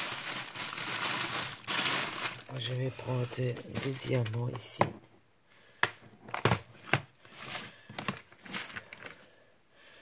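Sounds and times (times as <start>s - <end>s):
plastic box clicks and knocks: 5.8s - 7.1s.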